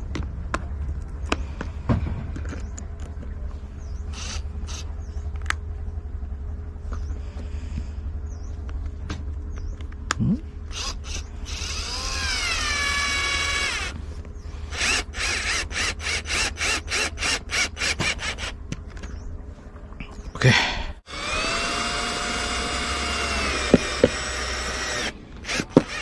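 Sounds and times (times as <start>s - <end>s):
electric drill motor whining: 4.1s - 4.9s, 10.7s - 14.0s, 14.7s - 18.6s, 21.1s - 26.0s.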